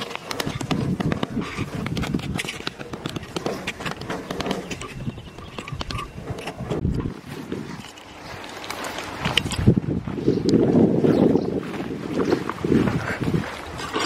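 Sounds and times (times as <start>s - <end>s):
stick scratching sandy soil: 0.0s - 9.7s.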